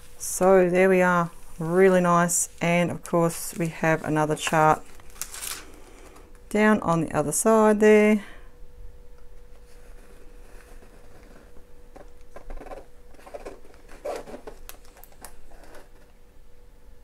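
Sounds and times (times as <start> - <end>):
plastic film rustling and crinkling: 1.2 - 6.4, 9.6 - 16.1.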